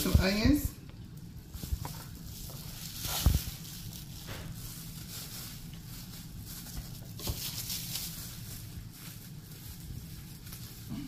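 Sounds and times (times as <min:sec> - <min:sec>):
faint rustling: 0:00.0 - 0:11.0.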